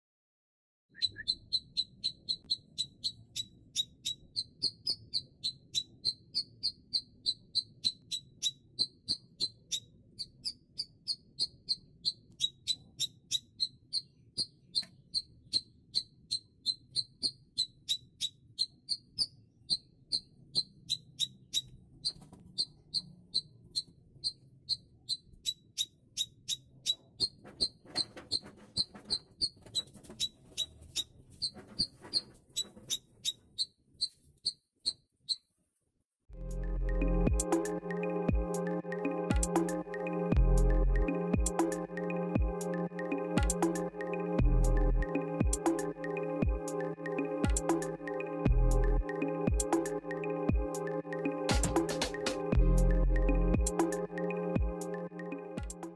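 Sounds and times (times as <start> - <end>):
bird sharp high pik notes: 36.4 - 55.9.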